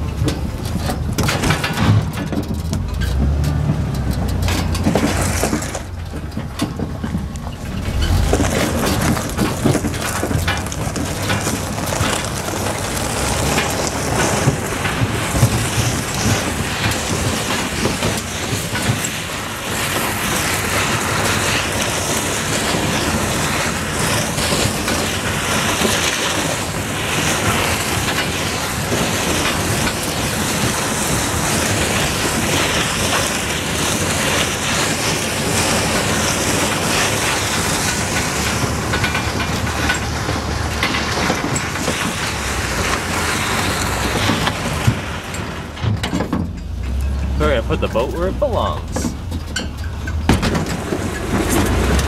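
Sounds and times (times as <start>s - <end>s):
vehicle engine running: 0.0s - 18.0s, 29.3s - 52.0s
boat hull scraping over gravel: 0.6s - 52.0s.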